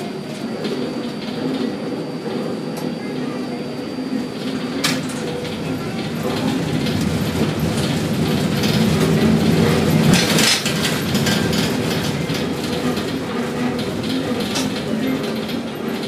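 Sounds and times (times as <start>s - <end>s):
crane machinery hum: 0.0s - 16.0s
rattling clattering noise: 4.4s - 16.0s.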